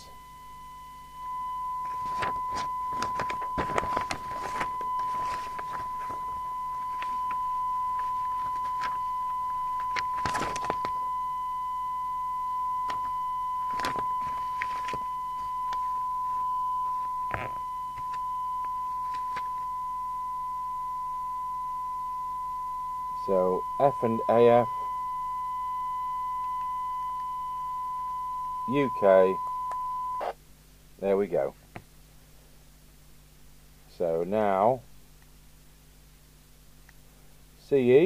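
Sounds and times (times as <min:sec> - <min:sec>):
steady test tone from radio: 0:00.0 - 0:30.4, 0:33.2 - 0:34.8, 0:35.4 - 0:38.0.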